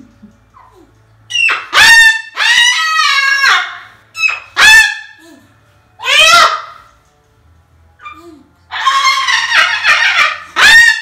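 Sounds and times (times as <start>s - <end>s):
cockatoo screaming: 1.3s - 5.2s, 6.0s - 6.9s, 8.0s - 11.0s.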